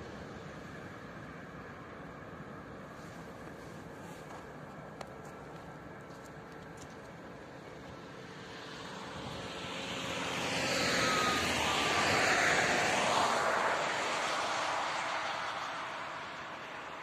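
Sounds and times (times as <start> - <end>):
vehicle passing by whooshing: 8.2 - 17.0.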